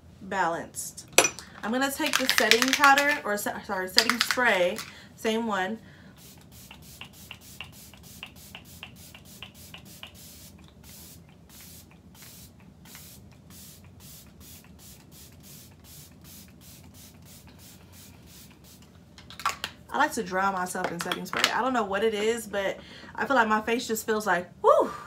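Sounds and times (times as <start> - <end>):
spray bottle misting: 2.0 - 3.2, 4.0 - 4.9, 6.2 - 18.9.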